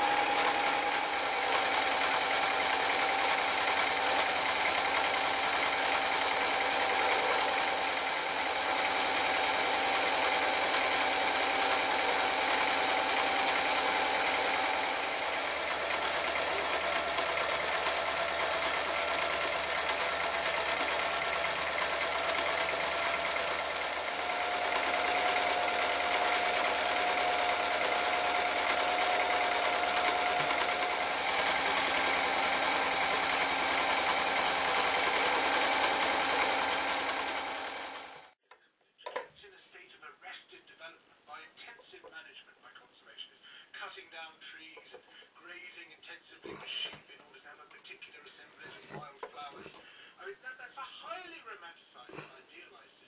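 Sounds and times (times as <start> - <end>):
electric sewing machine running: 0.0 - 38.4.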